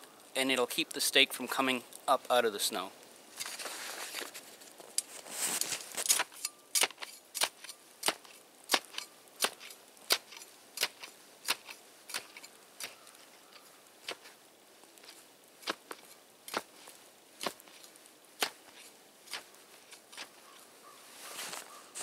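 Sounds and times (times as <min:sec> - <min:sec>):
shovel blade chopping into snow: 0:05.4 - 0:12.5, 0:15.0 - 0:16.8, 0:18.4 - 0:20.4.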